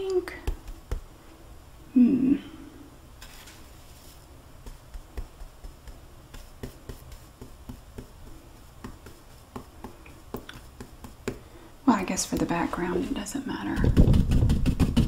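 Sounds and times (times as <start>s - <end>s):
paint brush tapping palette: 4.6s - 11.4s.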